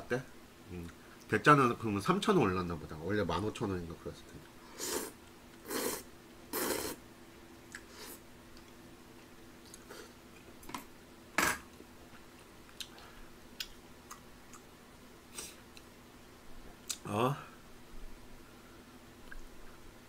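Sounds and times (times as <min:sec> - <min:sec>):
faint steady hum: 0:00.0 - 0:20.0
person chewing: 0:07.7 - 0:08.8, 0:12.4 - 0:14.7.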